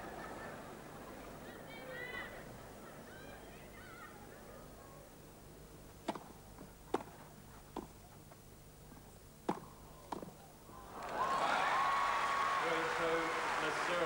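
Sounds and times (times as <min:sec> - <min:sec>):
tennis ball struck by racquets: 0:06.0 - 0:08.0, 0:09.4 - 0:10.4.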